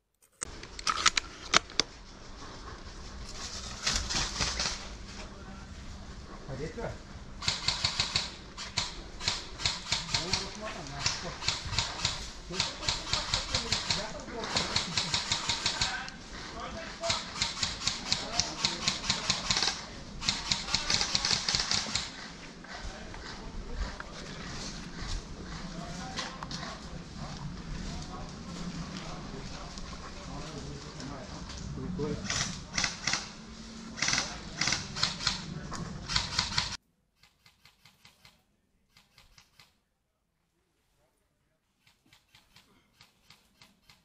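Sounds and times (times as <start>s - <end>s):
airsoft guns firing: 7.4s - 16.1s, 17.0s - 22.2s.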